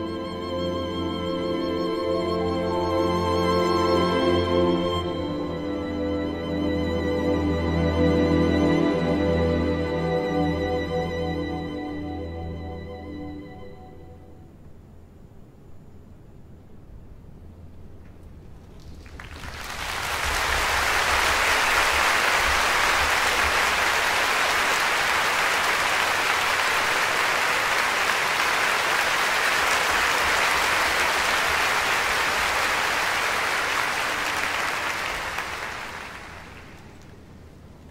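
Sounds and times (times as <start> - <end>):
audience applauding: 18.8 - 37.2.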